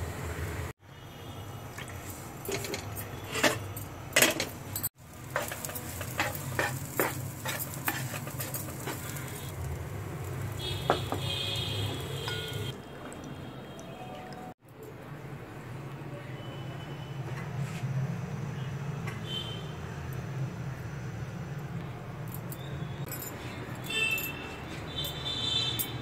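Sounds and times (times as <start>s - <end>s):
utensils clinking on pots: 1.8s - 9.5s, 10.8s - 14.5s
spatula scraping meat in pan: 5.2s - 9.5s.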